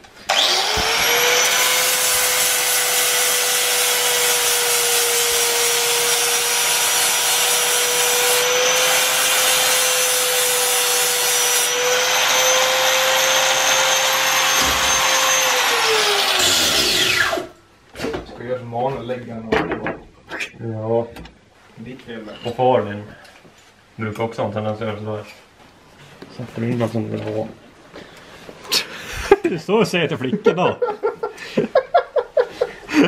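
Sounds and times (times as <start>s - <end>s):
angle grinder running: 0.3s - 17.5s.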